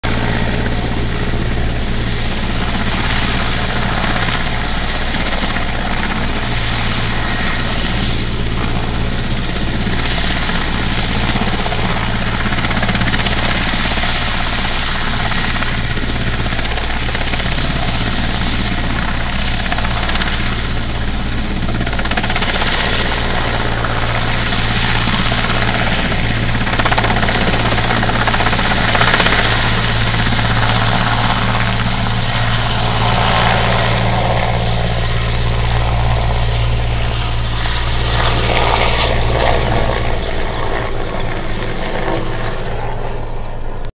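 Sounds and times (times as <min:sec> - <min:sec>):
helicopter hovering: 0:00.0 - 0:43.9.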